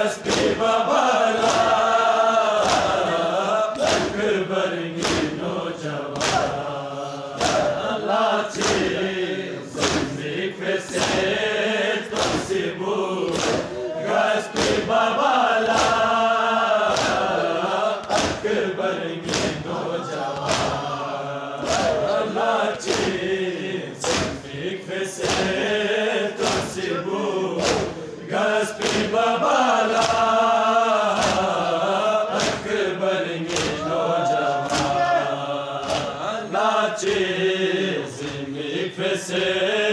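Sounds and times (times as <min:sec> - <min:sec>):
crowd of men chanting: 0:00.0 - 0:39.9
open-palm slaps on the chest: 0:00.2 - 0:00.6, 0:01.4 - 0:01.8, 0:02.6 - 0:03.0, 0:03.8 - 0:04.2, 0:05.0 - 0:05.4, 0:06.2 - 0:06.6, 0:07.4 - 0:07.7, 0:08.6 - 0:08.9, 0:09.8 - 0:10.2, 0:11.0 - 0:11.2, 0:12.2 - 0:12.5, 0:13.3 - 0:13.7, 0:14.5 - 0:14.9, 0:15.7 - 0:16.0, 0:16.9 - 0:17.3, 0:18.0 - 0:18.5, 0:19.2 - 0:19.6, 0:20.4 - 0:20.8, 0:22.8 - 0:23.2, 0:24.0 - 0:24.4, 0:25.2 - 0:25.6, 0:26.4 - 0:26.8, 0:27.6 - 0:28.0, 0:28.8 - 0:29.1, 0:29.9 - 0:30.3, 0:31.2 - 0:31.5, 0:32.3 - 0:32.6, 0:33.5 - 0:33.8, 0:34.6 - 0:35.0, 0:35.8 - 0:36.2.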